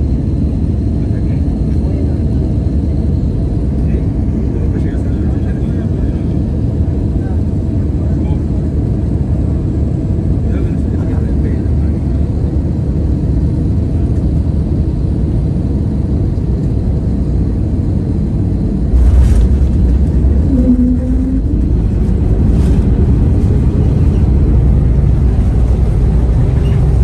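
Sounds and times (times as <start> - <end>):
airplane engine rumble: 0.0 - 27.0
airplane touchdown jolt: 19.0 - 20.5.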